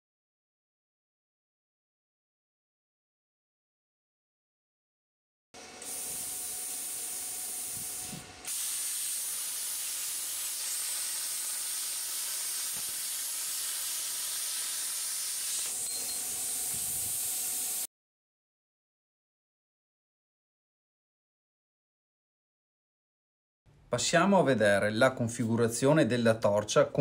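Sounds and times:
plasma cutter hissing: 0:05.8 - 0:17.9.

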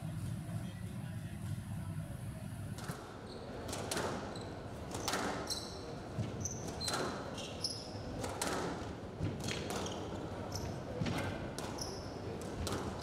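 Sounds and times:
shoes squeaking on court: 0:04.3 - 0:08.0.

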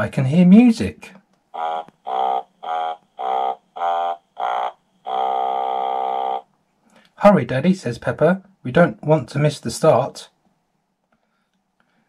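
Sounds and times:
buzzy electronic horn fanfare: 0:01.6 - 0:06.5.

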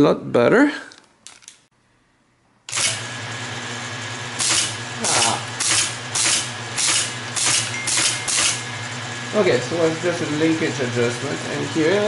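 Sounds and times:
teletype motor humming: 0:02.7 - 0:12.0.

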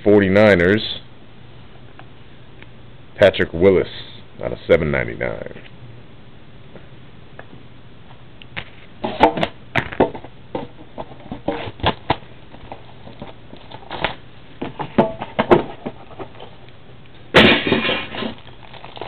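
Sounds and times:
packaging crinkling: 0:18.1 - 0:19.0.

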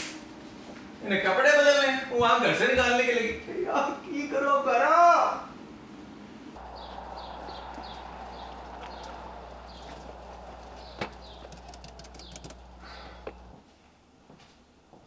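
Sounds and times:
steady low hum: 0:05.7 - 0:13.6
birds chirping: 0:06.6 - 0:13.6.

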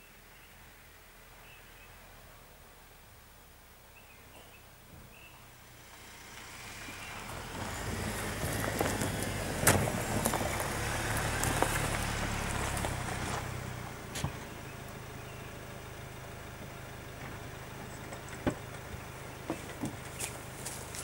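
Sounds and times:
car engine running slowly: 0:00.0 - 0:21.0
tyres crunching on gravel: 0:05.8 - 0:21.0.

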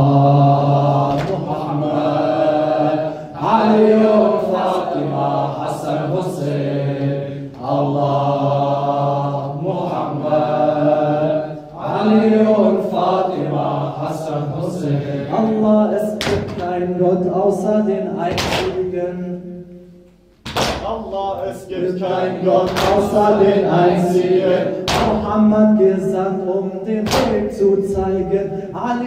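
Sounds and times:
hands slapping chests: 0:01.1 - 0:01.4, 0:20.4 - 0:20.9, 0:22.7 - 0:23.1, 0:24.8 - 0:25.2, 0:27.1 - 0:27.3
man chanting into a microphone: 0:11.8 - 0:19.8, 0:20.7 - 0:29.0.

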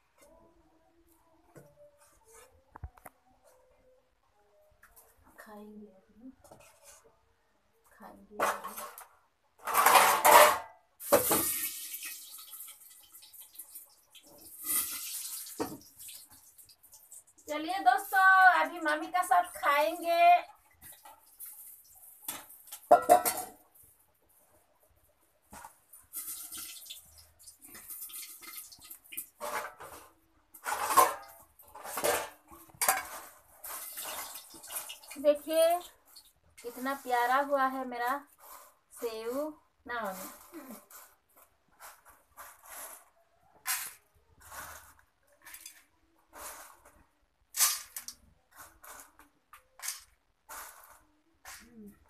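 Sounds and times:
metal plates clinking and scraping: 0:09.6 - 0:11.3, 0:22.3 - 0:23.6, 0:29.4 - 0:35.2, 0:47.5 - 0:49.2
crispy snack rustling onto plates: 0:25.5 - 0:52.0.

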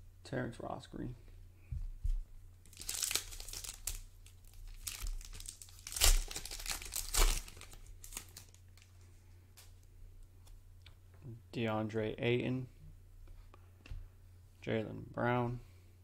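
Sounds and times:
foil wrapper tearing and crinkling: 0:02.7 - 0:08.9.

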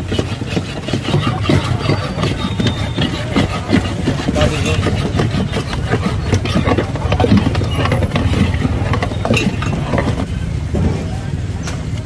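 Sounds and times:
sloshing: 0:00.0 - 0:11.2
low engine-like rumble: 0:01.1 - 0:12.0.

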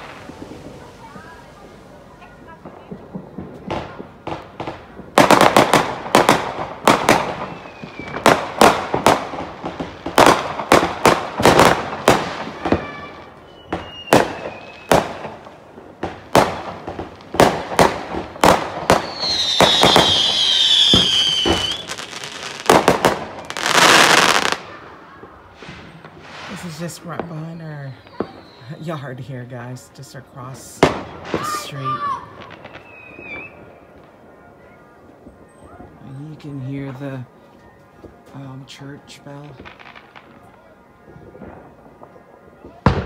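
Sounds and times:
whistling firework: 0:00.0 - 0:01.6, 0:06.9 - 0:09.4, 0:10.3 - 0:15.5, 0:17.4 - 0:29.1, 0:31.1 - 0:36.2, 0:39.8 - 0:43.0
loud firework burst: 0:00.0 - 0:15.4, 0:16.0 - 0:26.8
fireworks bangs: 0:00.0 - 0:37.3, 0:39.2 - 0:43.0.

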